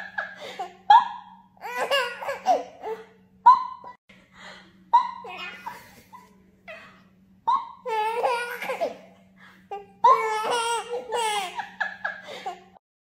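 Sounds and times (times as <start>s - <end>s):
baby laughing: 5.0s - 12.8s.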